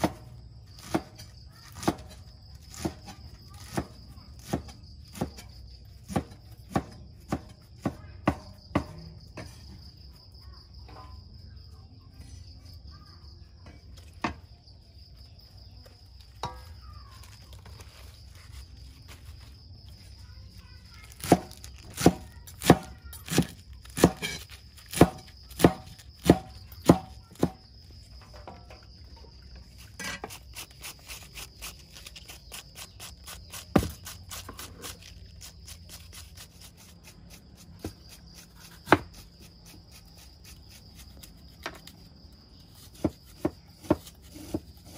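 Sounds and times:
knife chopping on wooden board: 0.0 - 5.4, 6.1 - 9.5, 21.2 - 27.6, 33.3 - 34.9, 37.7 - 39.2, 42.9 - 44.9
crickets chirping: 0.0 - 44.9.

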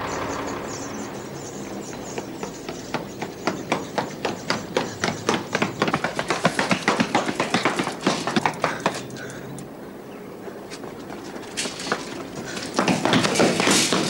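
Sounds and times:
running footsteps on cobbles: 1.6 - 9.5, 10.4 - 14.0.

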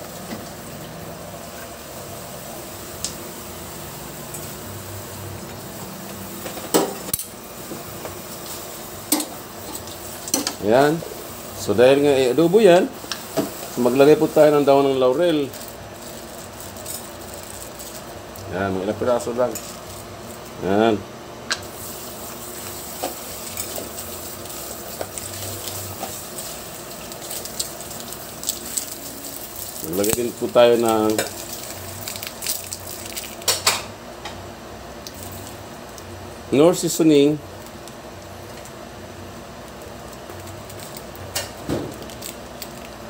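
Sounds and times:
food sizzling in a wok: 0.0 - 18.4, 21.6 - 36.5
steady hiss: 7.3 - 15.8, 21.6 - 32.6.

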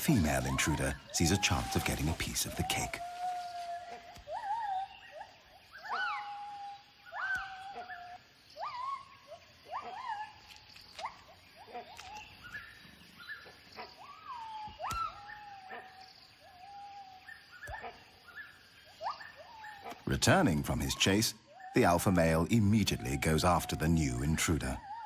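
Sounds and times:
gibbons whooping hoots: 0.0 - 9.1.

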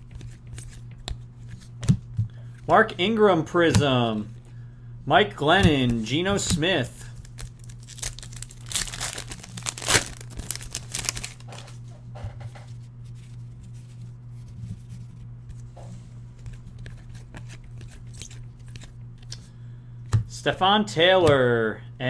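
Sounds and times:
cards rustling: 0.0 - 1.9, 5.7 - 11.8, 16.3 - 19.4
steady low hum: 0.0 - 22.0
card pack wrapper tearing: 7.1 - 11.7.

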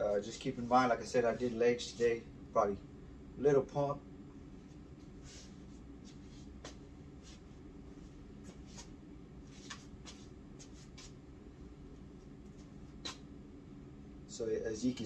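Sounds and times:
small room hum: 0.0 - 15.0
rustles and light scuffs: 0.2 - 2.1, 4.6 - 11.2.

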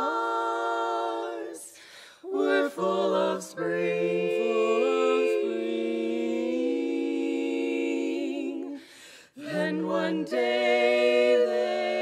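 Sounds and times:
women singing a cappella chord: 0.0 - 12.0
breath: 1.7 - 2.3, 8.8 - 9.4.

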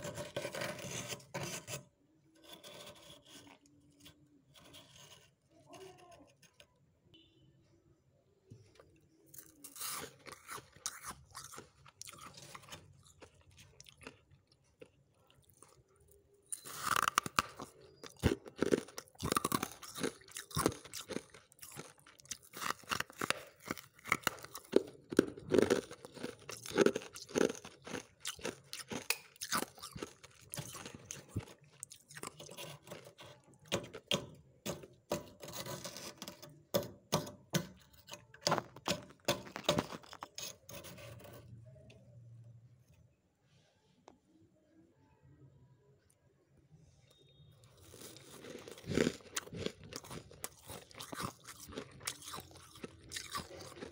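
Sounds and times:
frost being crunched and chewed: 9.3 - 34.2, 37.9 - 40.7, 47.8 - 53.9.

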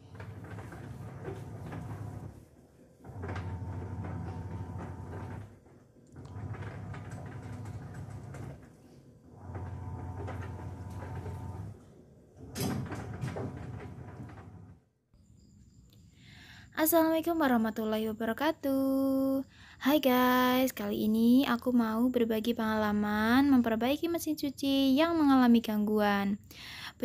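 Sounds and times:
grinding scraping rattle: 0.0 - 2.4, 3.1 - 5.6, 6.2 - 8.8, 9.4 - 11.8
washing machine motor strokes: 0.0 - 14.8.

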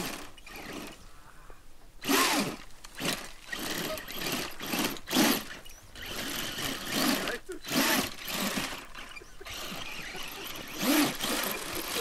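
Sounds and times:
buggy engine revving hard: 3.6 - 12.0.

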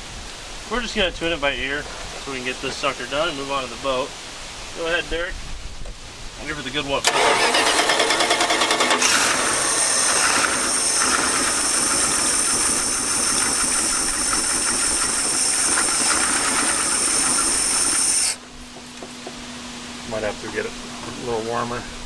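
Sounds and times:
loud steady hiss: 0.0 - 22.0
engine running unevenly: 7.0 - 22.0.

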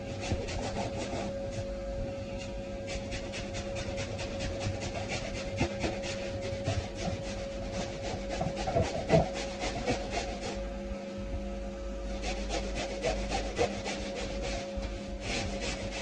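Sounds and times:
vacuum motor humming: 0.0 - 16.0
nozzle rasping on fabric: 2.9 - 10.6, 12.2 - 16.0.

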